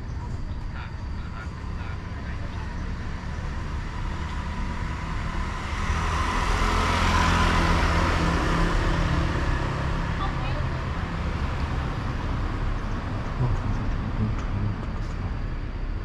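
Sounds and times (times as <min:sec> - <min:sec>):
traffic rumble: 0:00.0 - 0:16.0
motor scooter passing: 0:02.2 - 0:13.5.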